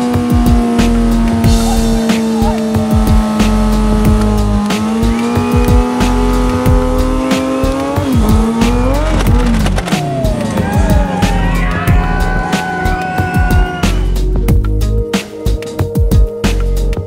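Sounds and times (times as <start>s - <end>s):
motorcycle engine revving: 0.0s - 14.7s
tyre squealing: 1.3s - 14.2s.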